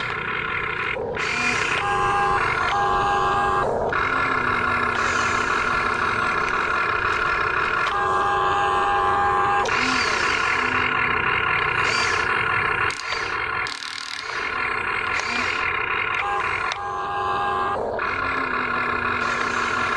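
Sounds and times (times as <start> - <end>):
toy excavator motor whine: 0.0 - 19.9.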